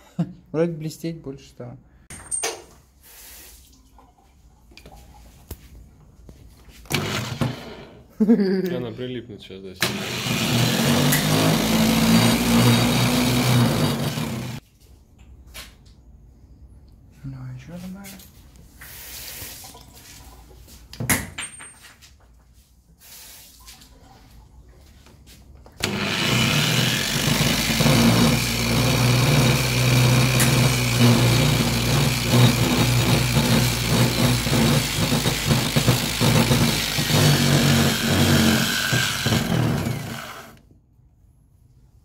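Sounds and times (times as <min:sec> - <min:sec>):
angle grinder running: 0:06.9 - 0:08.0, 0:09.8 - 0:14.6, 0:25.8 - 0:40.6.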